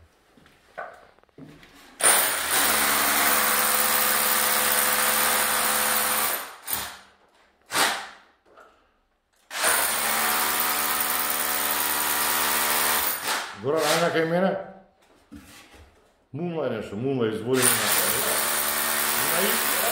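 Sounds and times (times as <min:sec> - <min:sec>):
electric drill running: 0:17.6 - 0:19.9.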